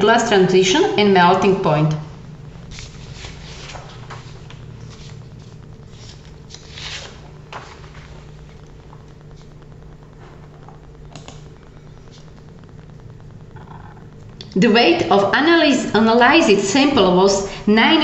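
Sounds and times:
steady low hum: 0.0s - 18.0s
faint clicks and rustles: 2.4s - 14.6s.

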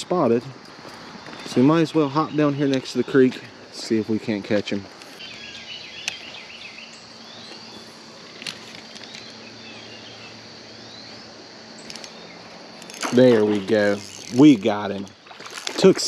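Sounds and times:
high insect drone: 0.0s - 16.0s
bird chirps: 5.2s - 7.9s, 9.0s - 14.4s.

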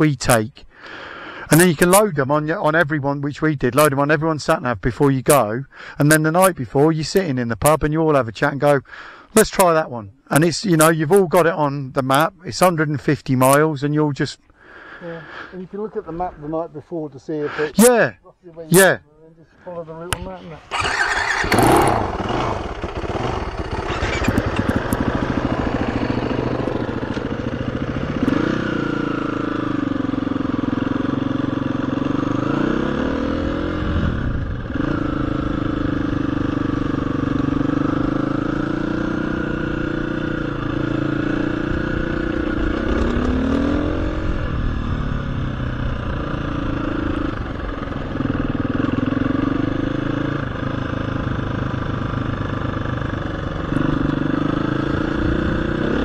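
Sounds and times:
motorcycle engine revving: 20.1s - 56.0s.

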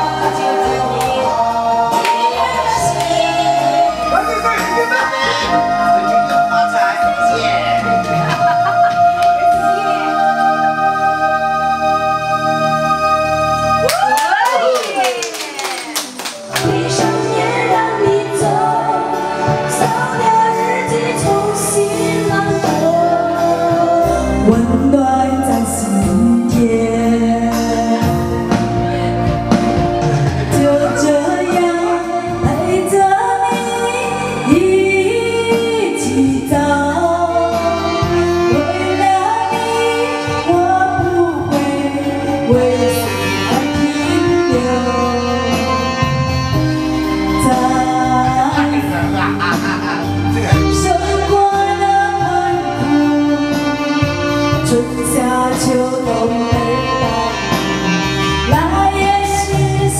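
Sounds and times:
woman singing into microphone: 0.0s - 4.2s, 7.2s - 12.4s, 16.4s - 29.7s, 30.4s - 59.9s
pop backing track: 0.0s - 59.9s
steady bass line: 22.3s - 59.9s.

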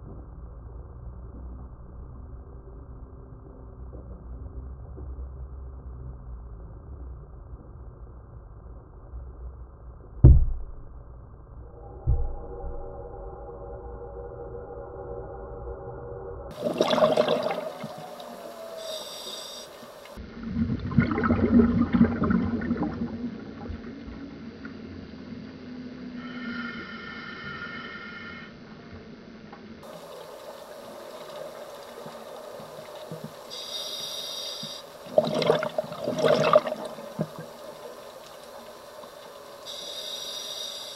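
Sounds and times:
faint high whine: 10.8s - 20.8s, 21.5s - 40.9s
gurgling exhaled bubbles: 16.5s - 19.2s, 19.8s - 23.9s, 35.0s - 37.7s
underwater exhaust bubbles gurgling: 16.5s - 26.2s, 29.8s - 40.9s
regulator inhale hiss: 18.5s - 20.2s, 26.1s - 28.6s, 33.2s - 35.1s, 39.3s - 40.9s.

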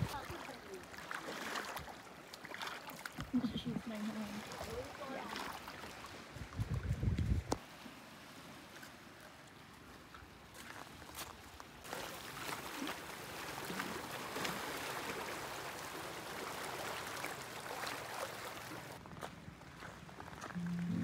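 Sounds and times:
water rushing: 0.0s - 6.4s, 12.0s - 19.0s.

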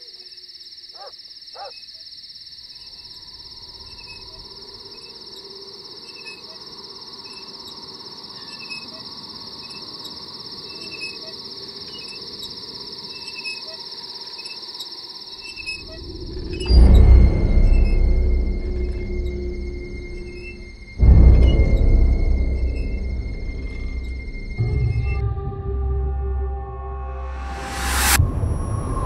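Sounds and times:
night insects trilling: 0.0s - 25.2s
short insect chirps: 0.0s - 25.2s
low rumble: 15.6s - 29.0s.

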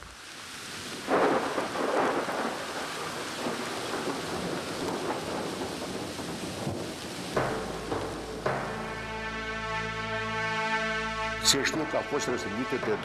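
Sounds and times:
steady rain hiss: 0.0s - 13.0s
thunder rolling: 1.0s - 9.2s
low sustained music: 7.4s - 13.0s.

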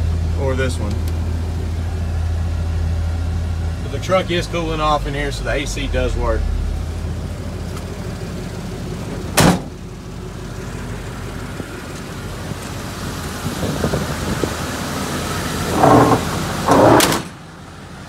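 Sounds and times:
truck engine idling: 0.0s - 18.0s
car door shutting: 9.3s - 9.8s, 15.7s - 17.4s.

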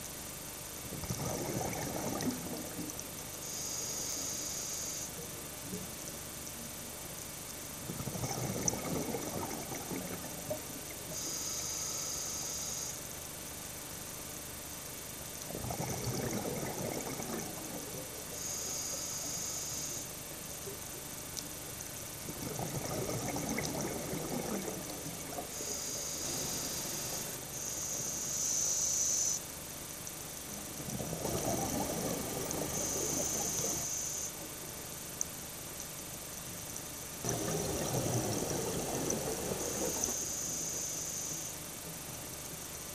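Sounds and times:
exhaled bubbles underwater: 0.9s - 3.4s, 7.8s - 11.3s, 15.5s - 18.5s, 22.1s - 27.5s, 30.7s - 34.1s, 37.2s - 41.4s
regulator inhalation hiss: 3.4s - 5.1s, 11.1s - 13.0s, 18.3s - 20.2s, 25.5s - 29.4s, 32.7s - 34.4s, 39.4s - 41.6s.

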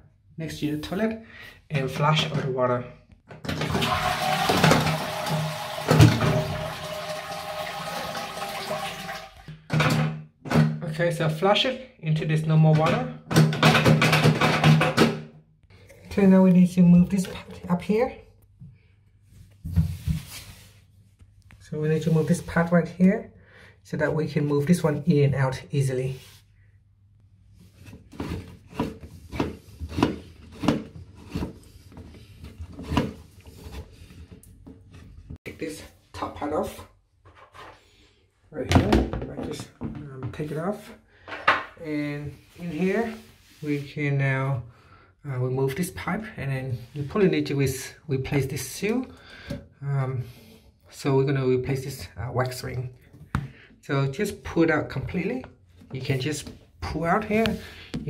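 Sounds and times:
toilet flushing: 3.5s - 9.5s.

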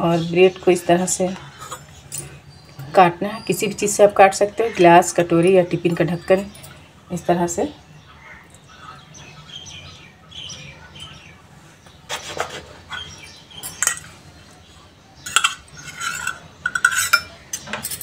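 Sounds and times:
steel bowl cutting through bread: 15.3s - 18.0s.

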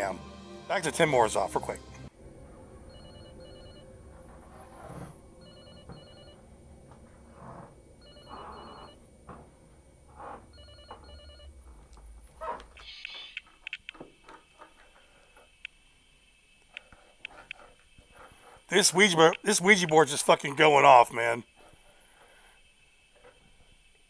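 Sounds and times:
telephone ringing faintly: 2.8s - 4.3s, 5.2s - 6.6s, 7.9s - 9.1s, 10.5s - 11.8s.

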